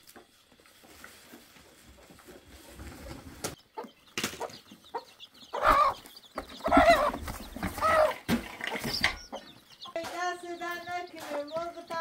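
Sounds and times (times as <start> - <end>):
hen squawking cluck: 3.7 - 10.3
handling knocks and rustles: 6.4 - 9.3.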